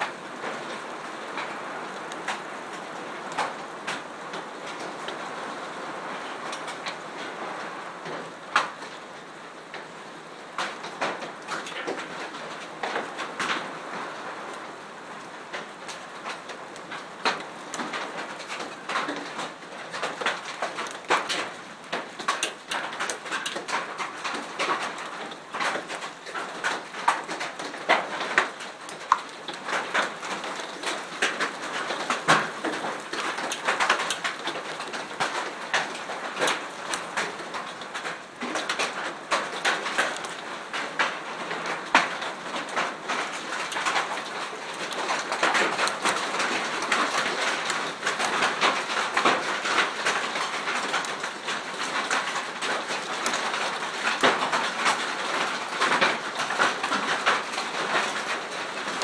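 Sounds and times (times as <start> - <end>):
hailstones clattering: 10.5 - 14.5, 15.1 - 59.0
rain hissing: 12.8 - 59.0.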